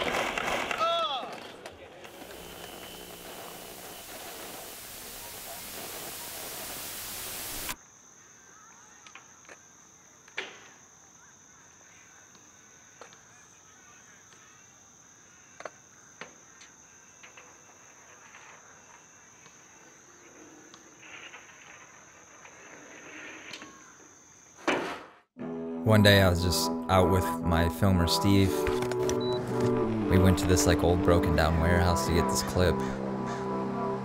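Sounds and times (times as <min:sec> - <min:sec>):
static hiss: 0:02.1 - 0:07.8.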